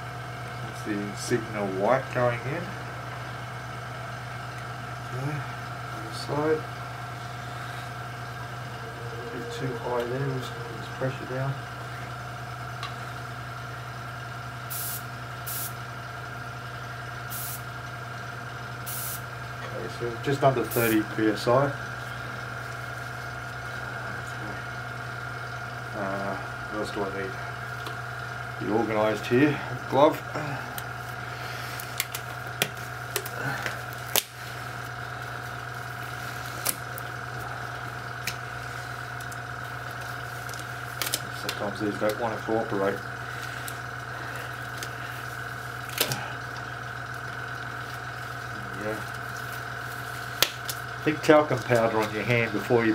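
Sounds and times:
compressor humming: 0.0s - 52.9s
airbrush air hisses: 14.7s - 15.8s, 17.3s - 17.6s, 18.9s - 19.2s
disposable glove snapping: 50.4s - 50.8s.

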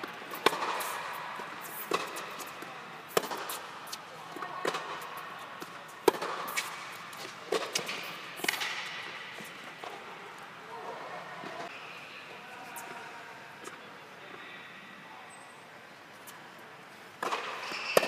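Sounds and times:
racquets striking tennis ball: 0.0s - 4.0s, 4.6s - 10.0s, 17.2s - 18.0s.

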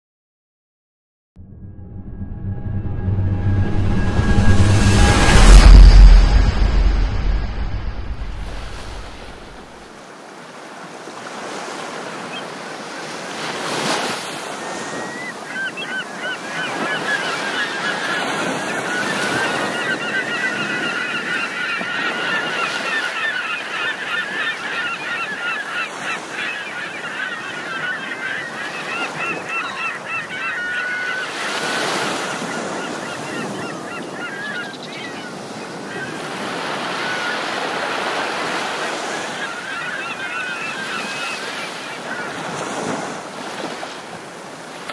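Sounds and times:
waves washing on shore: 8.3s - 44.9s
flock of birds calling: 14.6s - 42.9s.

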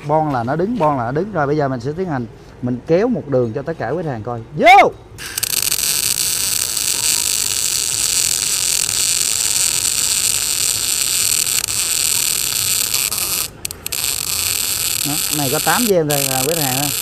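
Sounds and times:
welder arc sizzling hiss: 5.2s - 17.0s.

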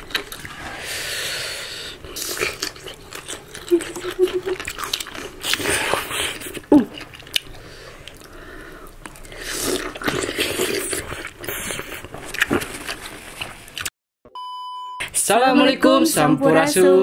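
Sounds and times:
biting and chewing fruit: 0.0s - 0.8s, 2.0s - 13.9s.

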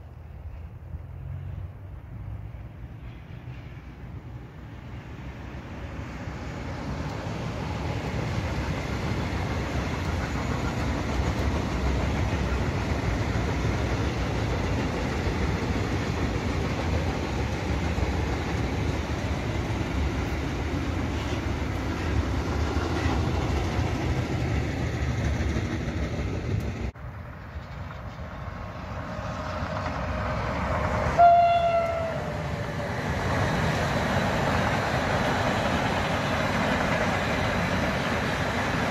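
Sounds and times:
freight train wheels on rail: 0.0s - 38.9s
train horn: 31.1s - 32.5s.

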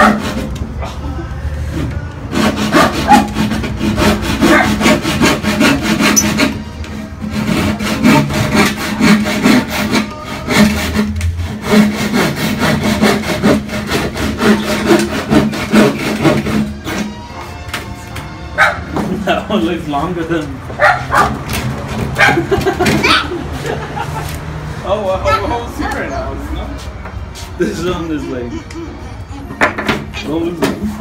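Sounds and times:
hand saw cutting wood: 0.0s - 0.9s, 1.7s - 17.4s, 20.8s - 24.4s.

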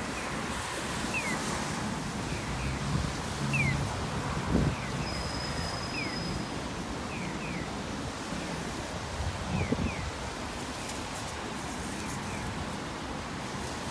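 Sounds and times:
street and wind noise hiss: 0.0s - 13.9s.

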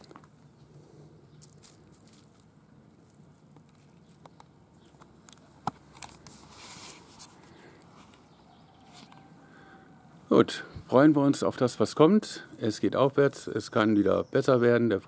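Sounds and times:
brief rustle: 6.0s - 8.3s.

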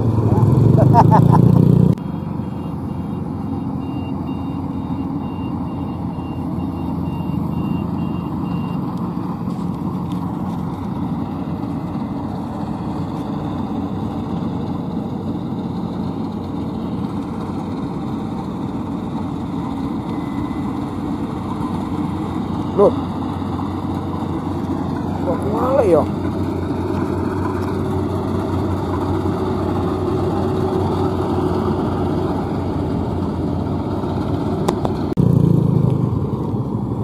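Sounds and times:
combine harvester drone: 0.0s - 37.0s
faint high beeping: 2.0s - 8.9s, 19.6s - 23.5s.

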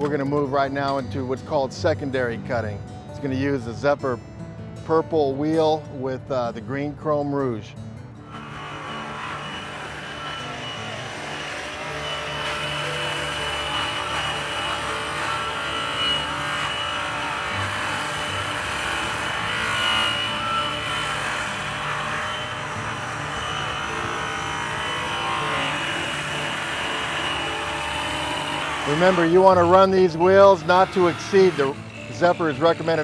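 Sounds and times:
buffing wheel hissing on metal: 8.2s - 33.0s
electric polisher whining: 8.2s - 33.0s.

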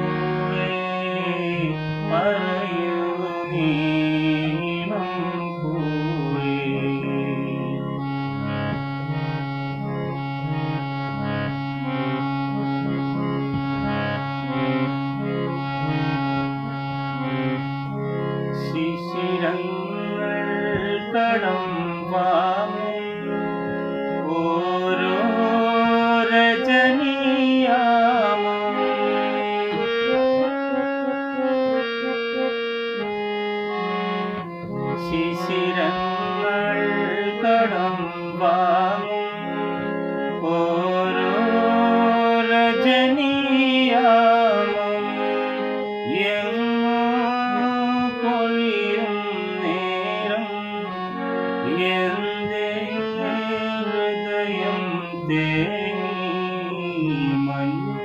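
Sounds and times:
man singing: 0.0s - 9.6s, 15.8s - 30.5s, 34.4s - 58.0s
harmonium chords: 0.0s - 58.0s.

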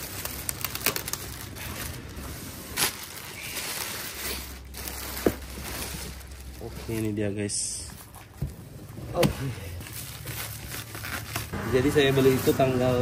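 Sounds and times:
plastic wrapping crinkling: 0.0s - 8.4s, 9.8s - 11.6s.

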